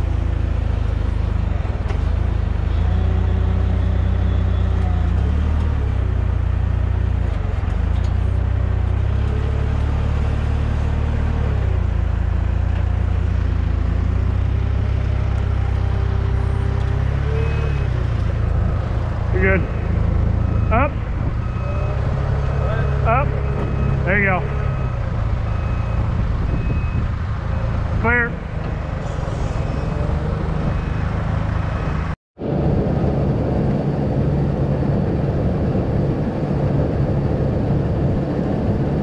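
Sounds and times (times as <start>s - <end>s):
heavy diesel engine rumbling: 0.0s - 39.0s.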